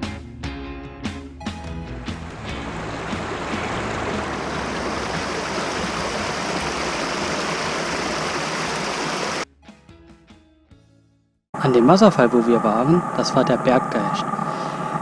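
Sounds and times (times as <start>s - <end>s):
stream rushing over rocks: 2.2s - 9.4s.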